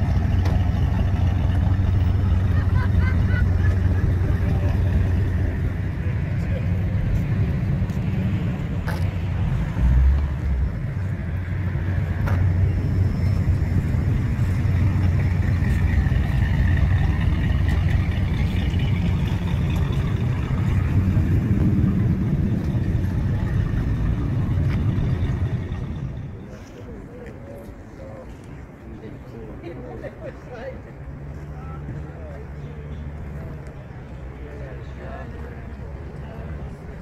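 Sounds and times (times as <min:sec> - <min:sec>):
car engine idling: 0:00.0 - 0:26.5.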